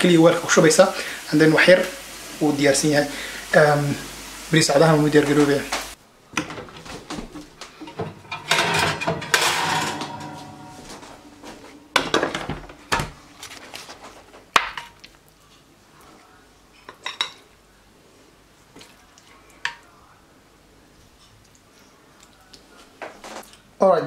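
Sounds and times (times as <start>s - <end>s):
dishes knocking and clinking: 6.4s - 13.6s
metal oven rack scraping: 7.8s - 14.2s.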